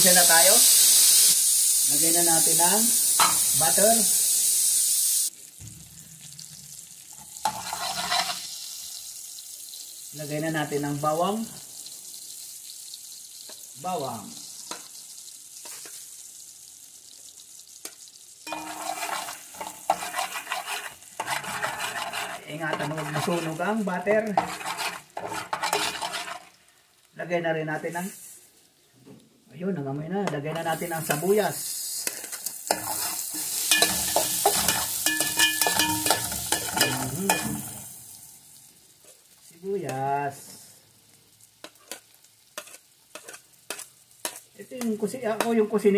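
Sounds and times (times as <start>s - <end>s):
garlic sizzling in butter: 0.0s - 28.9s, 30.0s - 45.9s
metal ladle scraping a pot: 7.4s - 8.5s, 18.5s - 23.6s, 24.4s - 26.5s, 32.7s - 37.7s.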